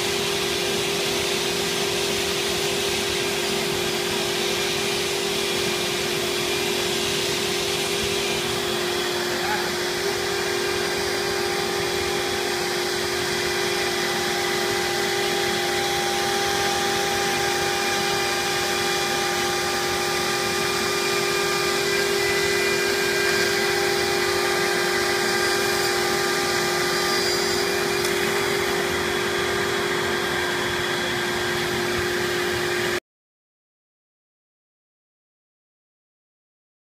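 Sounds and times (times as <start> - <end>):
router spindle whine: 0.0 - 33.0
dust extraction air rushing: 20.8 - 33.0.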